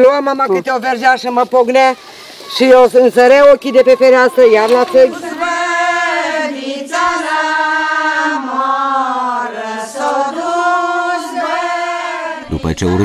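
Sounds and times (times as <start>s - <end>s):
woman singing unaccompanied: 4.5s - 13.0s.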